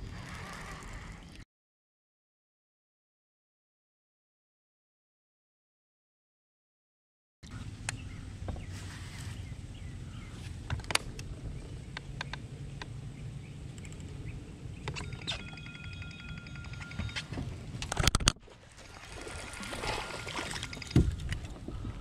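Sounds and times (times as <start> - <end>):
low steady hum: 7.4 - 22.0
fishing tackle clicks and knocks: 14.8 - 18.4, 20.4 - 21.7
mobile phone ringing: 15.0 - 17.4.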